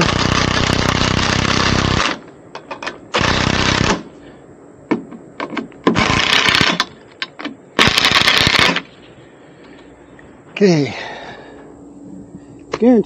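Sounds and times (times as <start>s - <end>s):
rapid mechanical rattling: 0.0s - 2.2s, 5.8s - 7.0s, 7.8s - 8.9s
sharp clicks and knocks: 4.9s - 8.8s.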